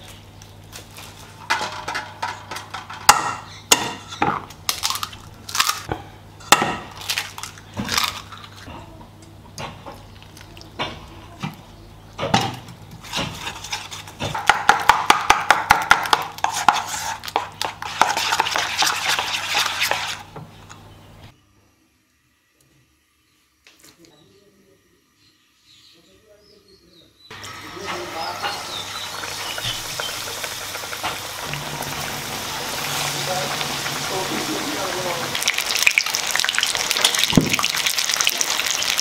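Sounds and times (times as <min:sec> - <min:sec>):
low electrical hum: 0:00.0 - 0:14.4, 0:20.1 - 0:39.0.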